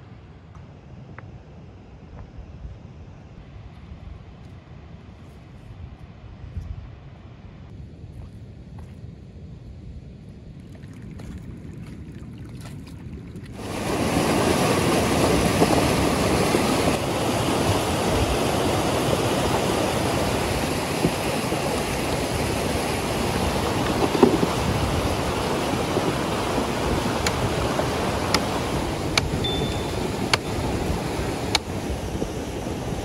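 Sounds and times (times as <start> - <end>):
river rushing: 13.6 - 33.0.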